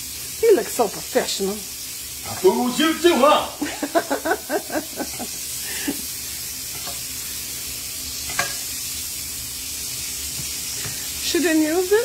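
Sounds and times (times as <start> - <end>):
steak sizzling in frying pan: 0.0 - 12.0
spatula scraping pan: 6.4 - 7.5, 8.1 - 8.9, 10.2 - 11.2.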